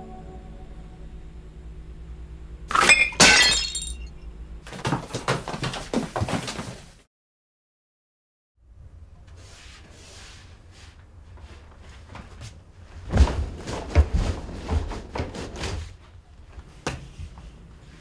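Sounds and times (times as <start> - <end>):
low steady hum: 0.0 - 4.9
thumps on a bed: 13.0 - 15.8.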